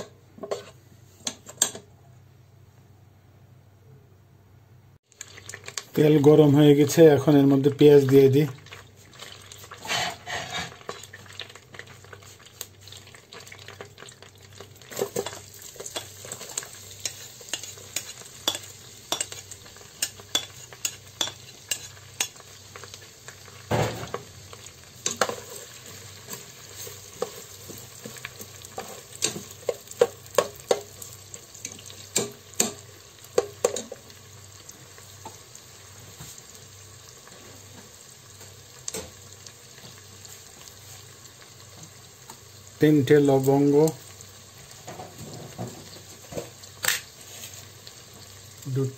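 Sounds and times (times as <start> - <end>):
onions sizzling in butter: 5.0 - 48.9.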